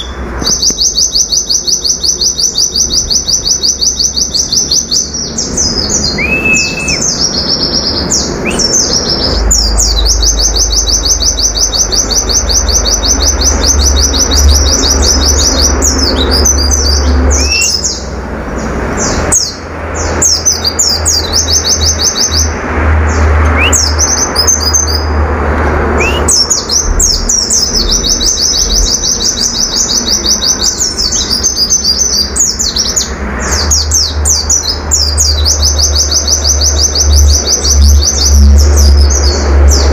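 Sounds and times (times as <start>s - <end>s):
bird chirps: 0.0s - 25.2s, 26.0s - 39.9s
bird singing rapid high notes: 0.0s - 25.2s, 25.9s - 39.9s
short rising whistles: 26.0s - 26.4s.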